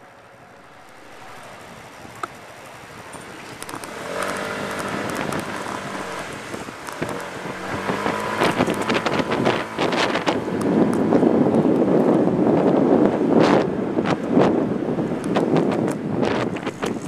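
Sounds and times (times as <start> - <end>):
vehicle engine speeding up: 0.0 - 17.0
wind buffeting microphone: 0.0 - 17.0.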